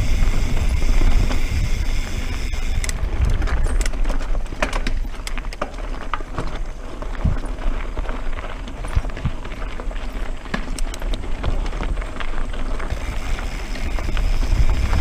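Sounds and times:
bike freewheel buzzing: 0:00.0 - 0:04.8, 0:11.6 - 0:15.0
wind rush on microphone: 0:00.0 - 0:05.5, 0:06.2 - 0:15.0
bike clicking and clattering: 0:00.0 - 0:15.0
tyres crunching over loose rocks: 0:00.0 - 0:15.0.

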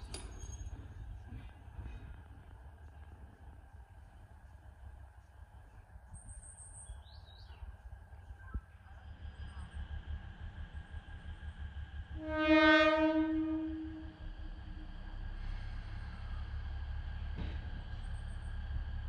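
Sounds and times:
train rumbling: 0:00.0 - 0:19.0
train horn blast: 0:12.2 - 0:14.2.

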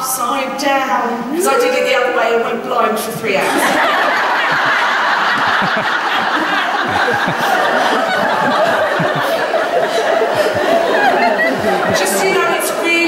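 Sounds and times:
large audience laughing: 0:03.4 - 0:13.0.

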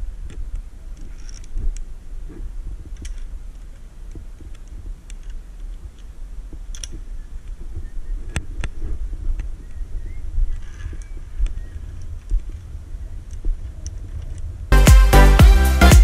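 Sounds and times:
carabiner clicking on steel cable: 0:00.2 - 0:01.9, 0:02.8 - 0:07.6.

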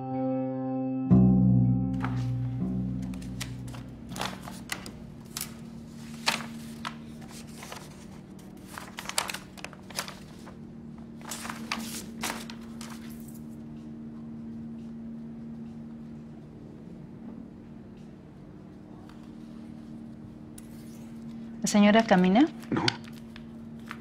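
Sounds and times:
low room hum: 0:01.1 - 0:24.0
paper rustling: 0:02.0 - 0:10.6, 0:11.2 - 0:13.5, 0:20.6 - 0:24.0.

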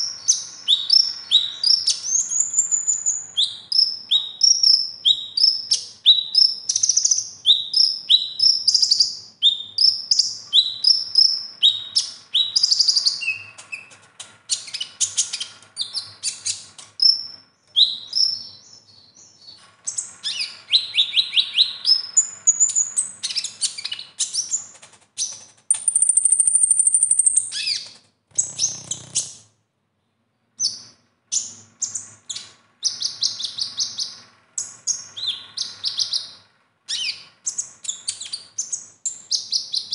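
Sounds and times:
bird singing: 0:00.0 - 0:39.9.

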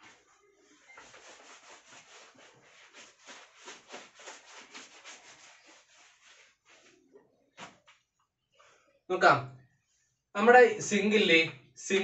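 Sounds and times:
cloth rubbing on chalkboard: 0:00.0 - 0:07.8.

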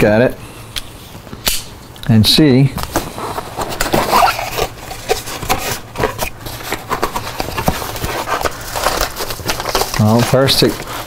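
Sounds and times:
cardboard lid scraping: 0:02.9 - 0:11.0
foam sheet rustling: 0:02.9 - 0:11.0.

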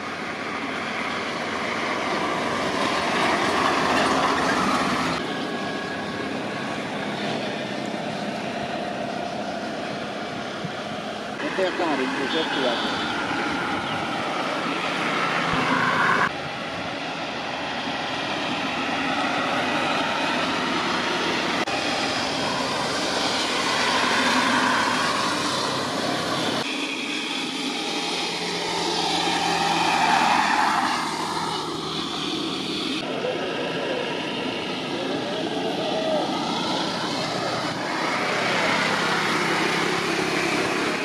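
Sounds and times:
distant jet engines: 0:00.0 - 0:41.0.

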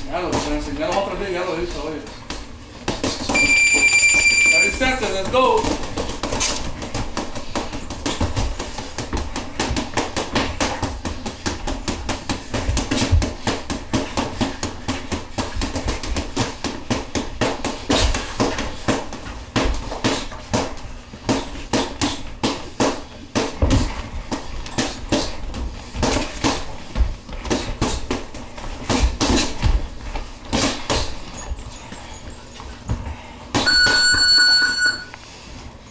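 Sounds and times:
gym timer beeping: 0:03.3 - 0:05.3, 0:33.6 - 0:35.2
boxing gloves thudding: 0:05.1 - 0:31.2.

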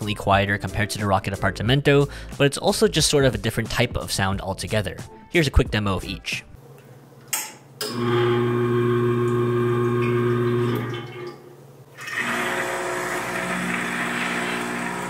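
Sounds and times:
espresso machine pump humming: 0:07.8 - 0:11.2, 0:12.0 - 0:15.0
quieter hissing pump: 0:12.0 - 0:15.0.

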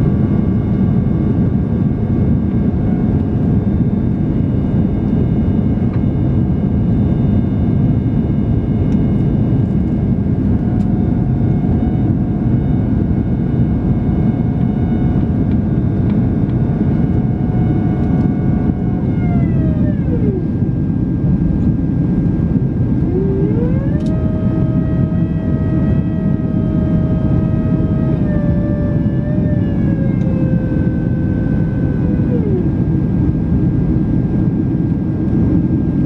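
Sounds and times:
airplane cabin engine rumble: 0:00.0 - 0:36.0
thin whining engine tones: 0:01.8 - 0:20.9, 0:22.6 - 0:33.2.

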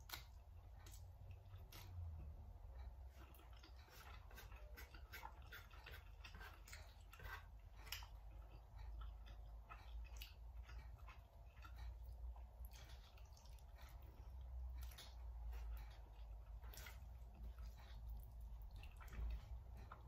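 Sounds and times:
person slurping and chewing noodles: 0:00.0 - 0:20.0.

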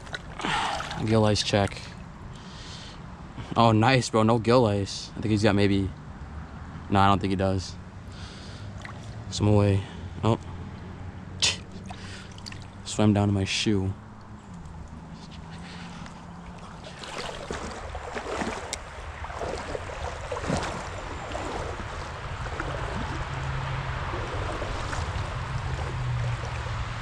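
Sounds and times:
water sloshing around wading: 0:00.0 - 0:02.5, 0:08.4 - 0:09.4, 0:10.5 - 0:13.0, 0:14.0 - 0:27.0
brush rustling: 0:14.5 - 0:26.8.

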